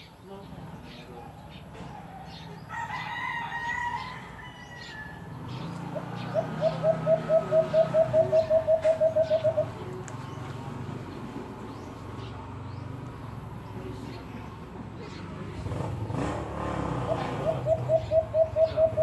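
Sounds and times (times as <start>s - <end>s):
rooster crowing: 2.6s - 5.3s.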